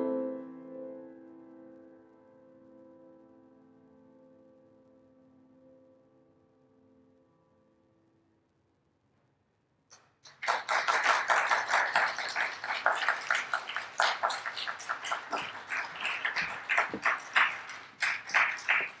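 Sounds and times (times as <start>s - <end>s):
audience clapping: 9.9s - 19.0s.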